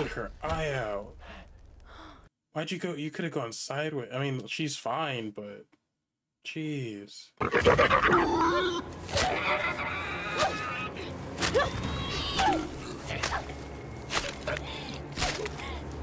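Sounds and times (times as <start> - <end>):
boar squealing and grunting: 7.4 - 13.4
stabbing and whacking impacts: 9.0 - 9.6, 11.4 - 15.6.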